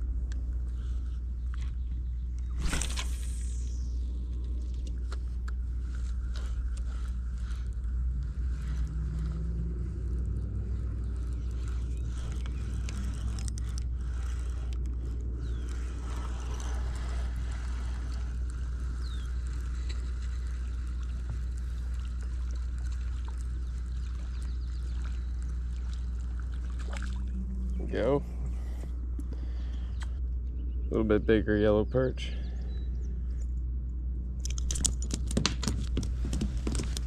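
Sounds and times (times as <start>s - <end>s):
steady low rumble: 0.0s - 37.0s
fishing reel whirring: 2.5s - 27.8s.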